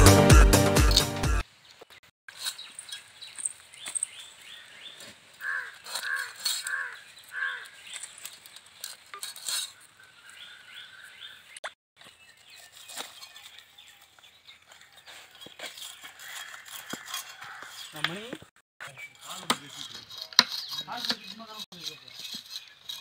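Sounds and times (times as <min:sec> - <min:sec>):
bird calling: 0:02.4 - 0:08.4, 0:09.4 - 0:11.6
fish scales scraping on blade: 0:05.4 - 0:09.8, 0:15.2 - 0:18.1, 0:19.2 - 0:23.0.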